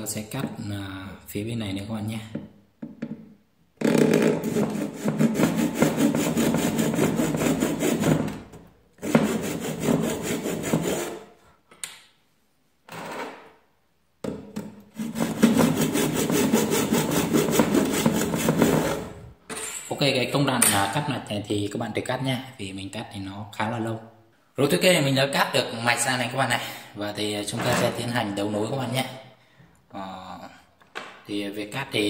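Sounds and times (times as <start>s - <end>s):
hand saw cutting circuit board: 4.0s - 8.4s, 9.0s - 11.3s, 15.0s - 19.1s.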